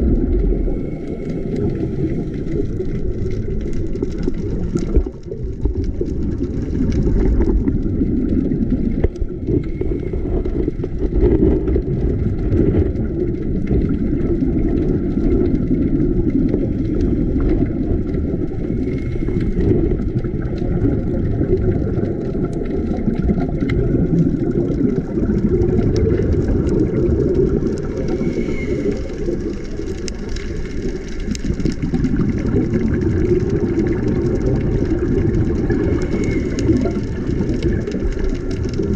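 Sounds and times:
muffled underwater rumble: 0:00.0 - 0:38.9
faint clicks: 0:16.3 - 0:38.9.

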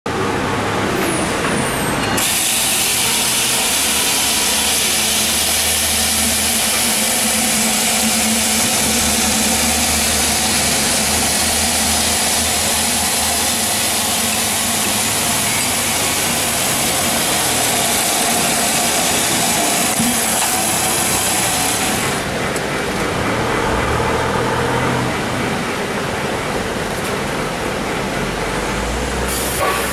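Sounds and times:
electric chainsaw cutting log: 0:02.2 - 0:22.2.

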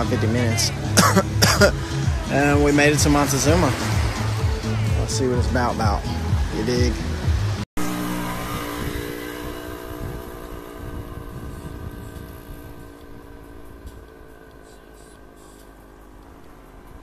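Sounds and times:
vehicle engine running: 0:00.0 - 0:17.0.

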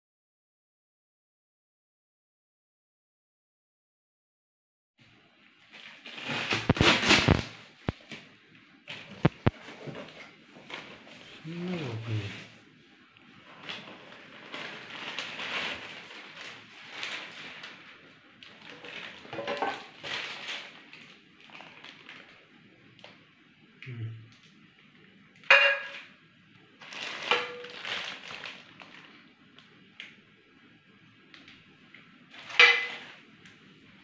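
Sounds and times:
plastic wrapping rustling: 0:05.6 - 0:08.3, 0:08.9 - 0:23.2, 0:26.7 - 0:29.9, 0:32.3 - 0:33.3
metal cookware clanging: 0:19.3 - 0:19.8, 0:25.5 - 0:26.1, 0:32.4 - 0:33.1.

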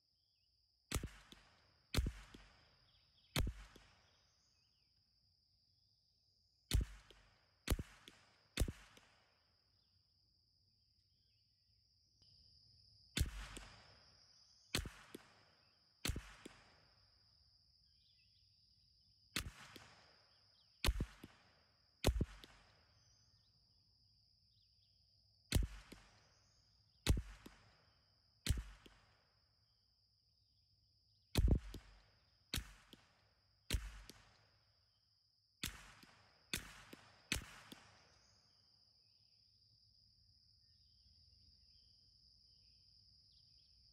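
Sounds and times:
rifle shots echoing: 0:35.6 - 0:38.0.

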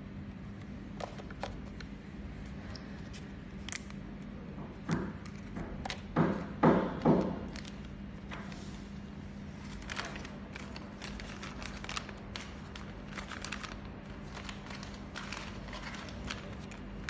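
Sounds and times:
faint steady hum: 0:00.0 - 0:17.0
plastic crinkling and clicks: 0:09.7 - 0:17.0.

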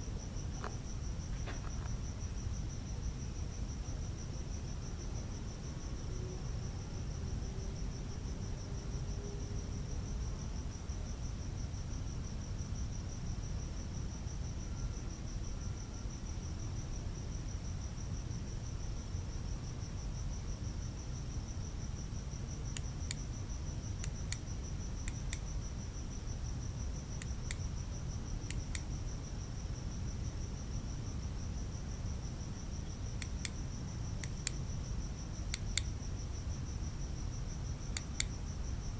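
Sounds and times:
crickets trilling: 0:00.0 - 0:38.9.

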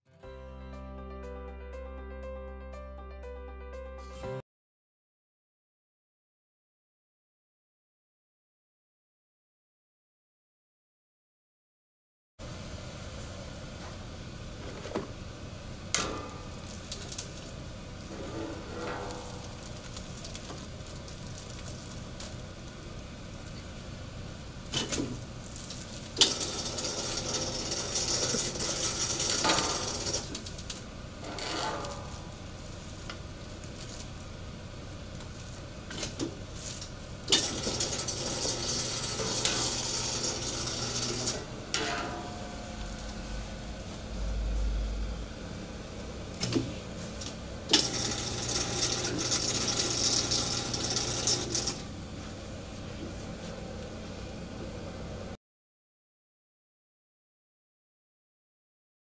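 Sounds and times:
crinkly hissing film: 0:16.5 - 0:18.2, 0:19.3 - 0:29.6, 0:32.3 - 0:41.1
low hum: 0:41.5 - 0:47.7.

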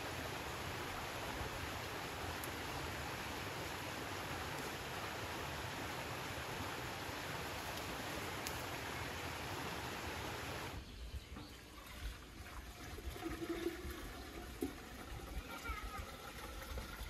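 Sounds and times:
water pouring from a jug: 0:11.5 - 0:17.0.

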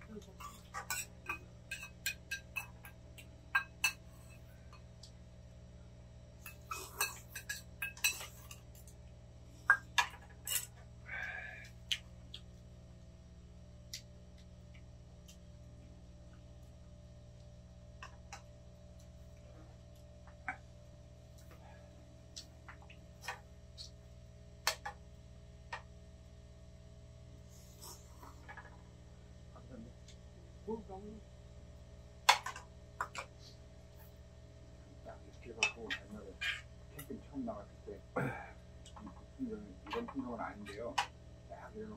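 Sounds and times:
chopsticks clinking on metal bowls: 0:00.1 - 0:04.5, 0:06.4 - 0:09.0, 0:09.7 - 0:10.8.

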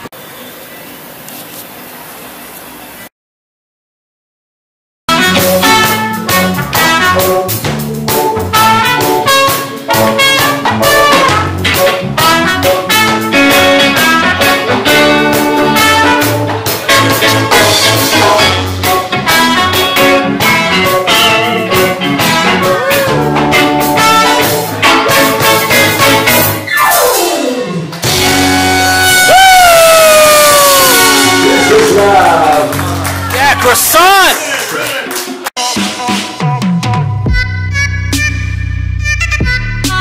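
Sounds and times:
trumpet: 0:05.1 - 0:33.2
electric guitar: 0:05.1 - 0:33.6
drum kit beat: 0:05.1 - 0:33.8, 0:35.1 - 0:40.0
live band playing: 0:05.1 - 0:40.0.

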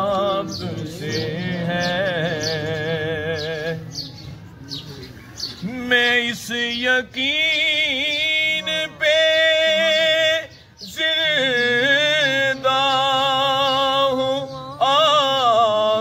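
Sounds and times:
low hummed vocal drone: 0:00.0 - 0:04.0.

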